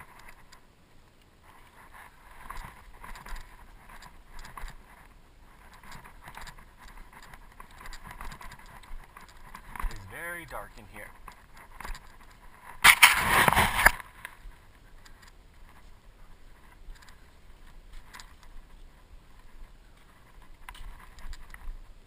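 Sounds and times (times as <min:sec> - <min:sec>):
crawling scraping and scuffing: 0:01.4 - 0:22.0
loud rough rustle: 0:11.4 - 0:14.7.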